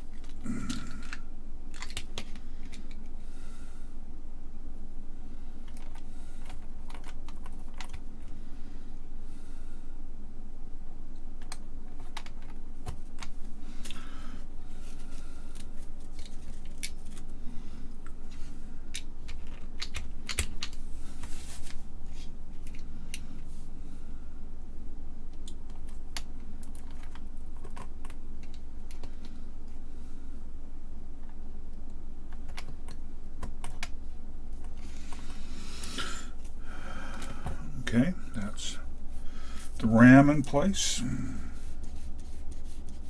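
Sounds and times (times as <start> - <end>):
small parts clicking and tapping: 0.1 - 3.1, 5.6 - 8.1, 11.1 - 14.0, 18.0 - 21.3, 25.3 - 29.8, 31.2 - 37.6.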